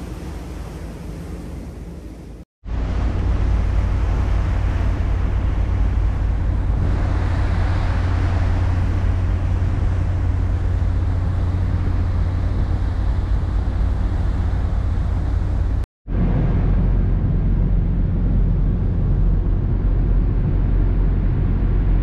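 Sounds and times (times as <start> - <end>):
rushing water: 0.0 - 15.9.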